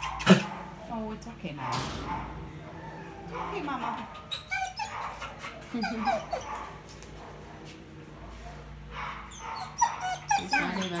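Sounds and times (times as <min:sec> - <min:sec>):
low room hum: 0:00.0 - 0:11.0
dog whining: 0:02.5 - 0:06.7, 0:09.2 - 0:11.0.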